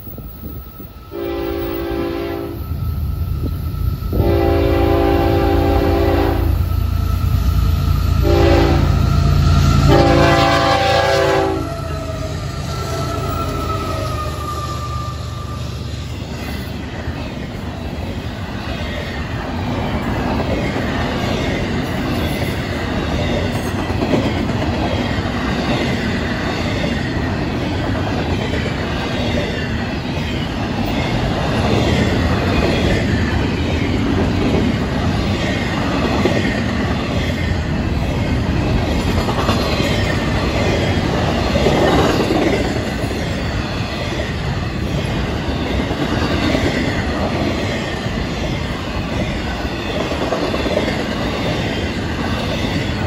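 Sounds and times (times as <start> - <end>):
freight train rumbling and clattering: 0.0 - 53.0
high wheel squeal: 11.5 - 16.6.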